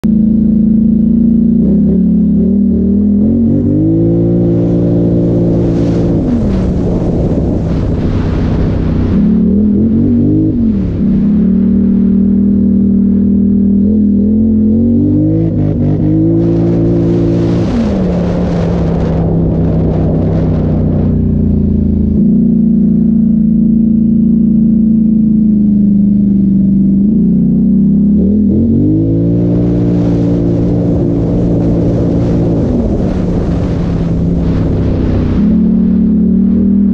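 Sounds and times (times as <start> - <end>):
atv engine under throttle: 0.0 - 36.9
rushing noise: 3.5 - 13.0, 15.4 - 23.0, 28.8 - 36.9.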